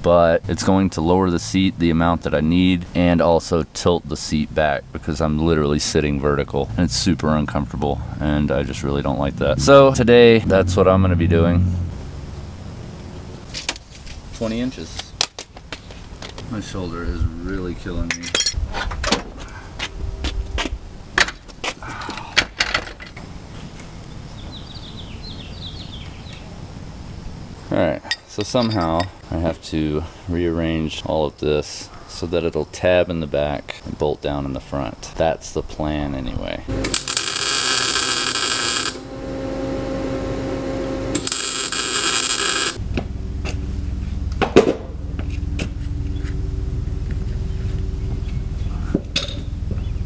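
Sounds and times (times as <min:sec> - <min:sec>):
low rumble: 0:05.9 - 0:13.5, 0:18.5 - 0:21.2, 0:42.8 - 0:50.0
welding crackle: 0:36.7 - 0:39.2, 0:41.1 - 0:42.8
steady hum: 0:36.7 - 0:49.8
metal clanks and rattles: 0:49.0 - 0:49.8.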